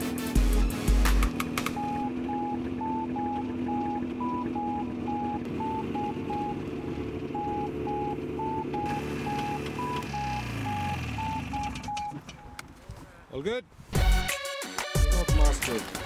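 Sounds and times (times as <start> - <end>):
sustained low chords: 0.0 - 12.6
electronic note beeping: 1.6 - 12.6.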